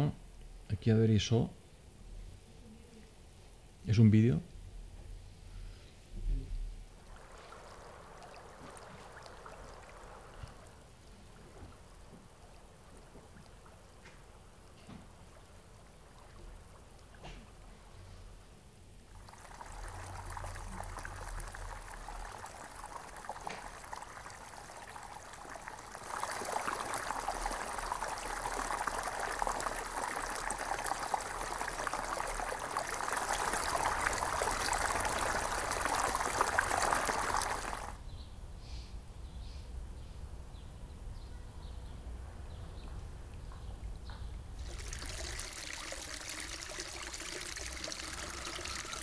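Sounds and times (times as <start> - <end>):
water rushing in stone channel: 6.9 - 18.0, 19.0 - 38.0, 44.6 - 49.0.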